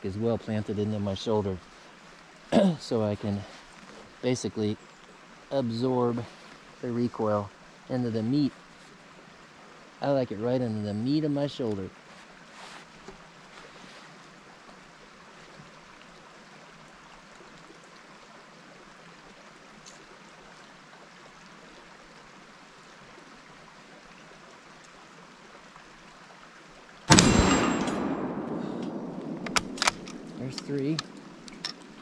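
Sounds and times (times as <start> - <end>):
faint hiss: 0.0 - 17.1, 17.8 - 32.0
rifle shot with echo: 27.1 - 31.7.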